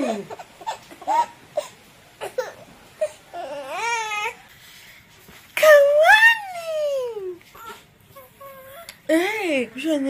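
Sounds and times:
infant squealing and crying: 0:03.0 - 0:04.4.

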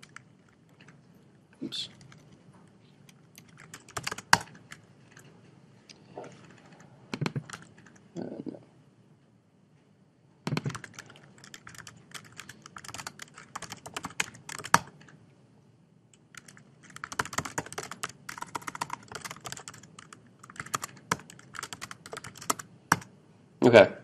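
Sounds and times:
fast typing on keyboard: 0:00.0 - 0:01.0, 0:01.9 - 0:02.4, 0:03.3 - 0:05.3, 0:06.4 - 0:08.0, 0:10.5 - 0:15.1, 0:16.2 - 0:23.1.

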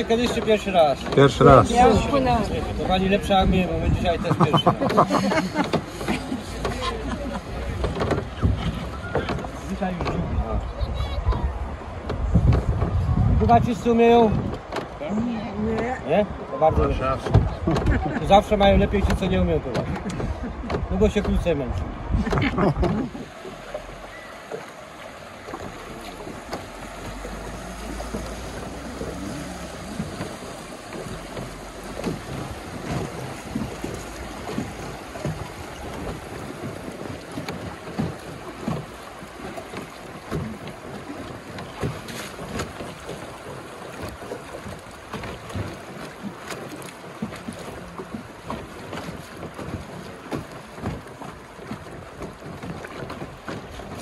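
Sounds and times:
wind buffeting microphone: 0:00.0 - 0:24.6, 0:25.2 - 0:54.0
river water splashing: 0:00.0 - 0:54.0
steady water rush: 0:00.0 - 0:54.0.

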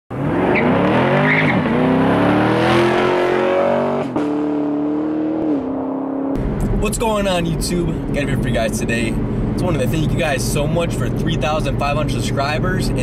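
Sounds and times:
car engine accelerating hard: 0:00.1 - 0:13.0.

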